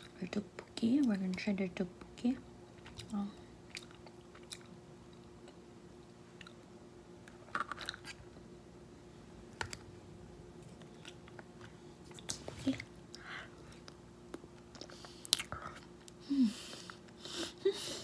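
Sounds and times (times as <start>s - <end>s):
faint steady hum: 0.0s - 18.0s
close-up chewing: 2.8s - 5.6s, 10.6s - 16.2s.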